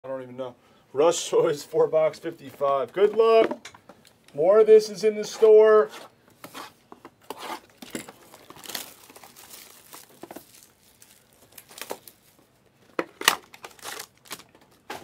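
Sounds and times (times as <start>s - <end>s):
plastic wrap crinkling and tearing: 7.7s - 15.0s.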